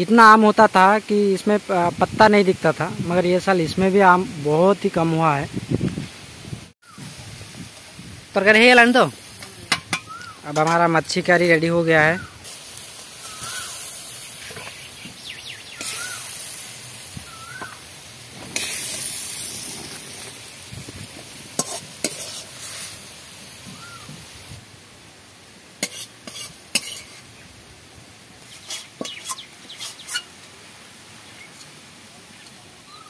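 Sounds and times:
curry sizzling in a pan: 6.8 - 33.0
ladle scraping a pan: 15.8 - 16.2, 21.6 - 23.0, 25.8 - 27.3, 28.4 - 30.3.

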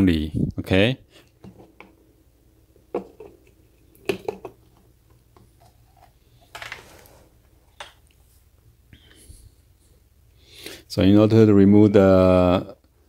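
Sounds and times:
plastic cap clicking and knocking: 2.9 - 6.1.

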